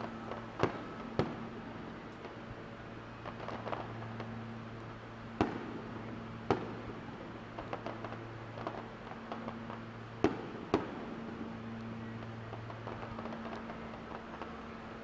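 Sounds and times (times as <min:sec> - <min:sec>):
fireworks pops and crackles: 0:00.0 - 0:15.0
fireworks bangs: 0:00.2 - 0:02.4, 0:05.4 - 0:11.6, 0:12.2 - 0:14.7.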